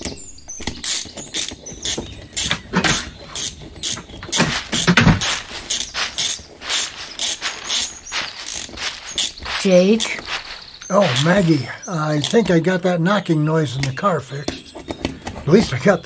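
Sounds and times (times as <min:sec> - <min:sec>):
ratchet wrench clicking: 0:00.8 - 0:09.3
metal hand tools clanking: 0:02.4 - 0:12.6.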